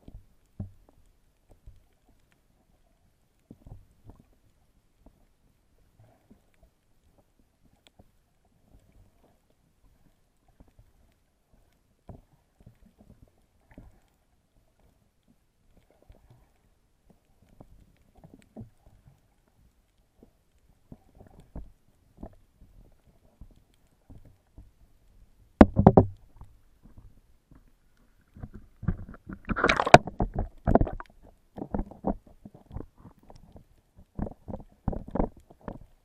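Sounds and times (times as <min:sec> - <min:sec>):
muffled underwater movement: 0:00.0 - 0:36.0
loud underwater bursts: 0:29.5 - 0:30.1.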